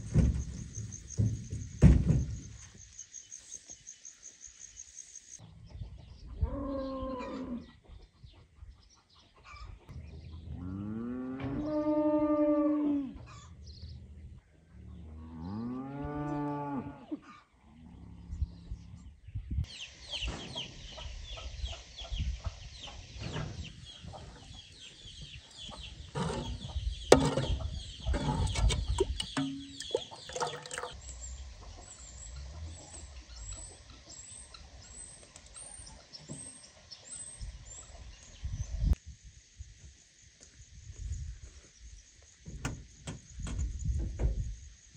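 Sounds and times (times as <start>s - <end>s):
small birds chirping: 0.0s - 10.6s, 18.3s - 39.0s.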